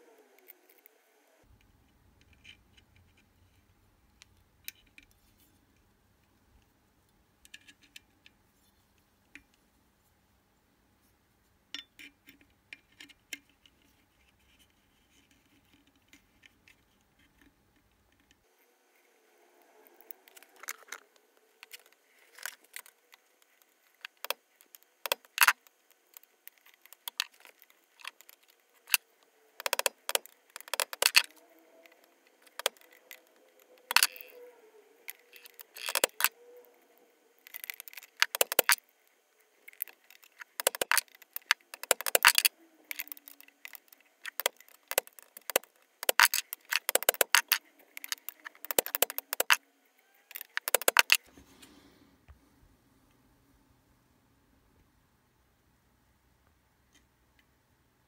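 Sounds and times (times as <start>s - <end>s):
sharp clicks and metal knocks: 11.7s - 13.5s, 29.6s - 31.3s, 32.4s - 34.4s, 35.1s - 36.3s, 37.4s - 38.8s, 39.7s - 49.6s, 50.4s - 51.2s.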